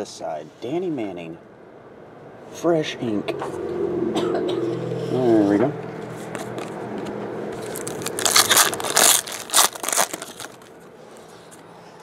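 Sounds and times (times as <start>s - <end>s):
foil wrapper crinkling and tearing: 7.6s - 10.8s.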